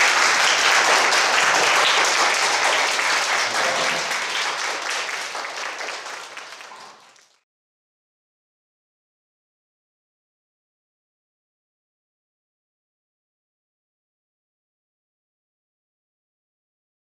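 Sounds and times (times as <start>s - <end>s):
crowd applauding: 0.0s - 7.5s.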